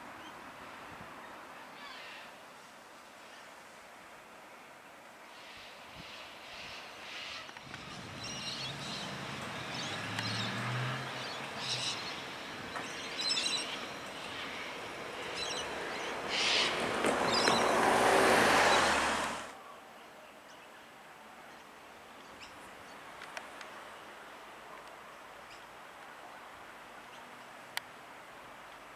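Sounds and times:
birds chirping: 5.4 - 19.4
vehicle engine hum: 7.8 - 19.5
vehicle passing: 7.8 - 19.5.

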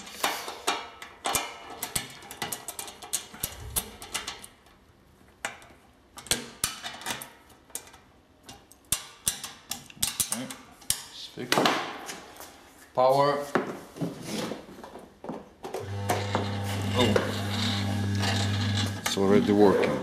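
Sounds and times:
metal clicks and taps: 5.4 - 11.1.

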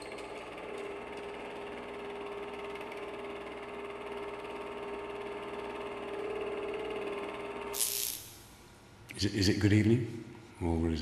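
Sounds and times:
steady hum: 6.2 - 11.0.

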